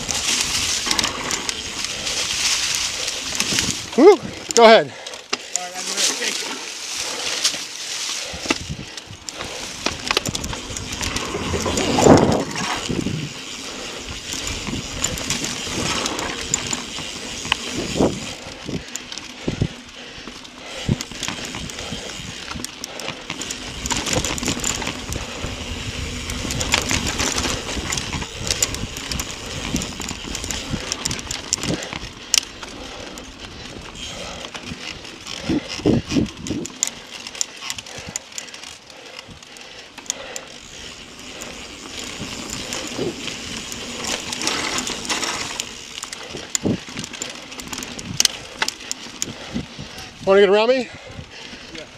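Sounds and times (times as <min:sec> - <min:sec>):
tyres crunching through leaves: 0:00.0 - 0:19.4
bike chain and frame rattling: 0:00.0 - 0:51.9.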